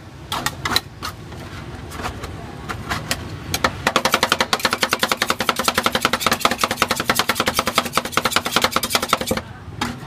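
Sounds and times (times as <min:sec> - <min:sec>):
metal spatulas chopping on tray: 0:03.6 - 0:09.4.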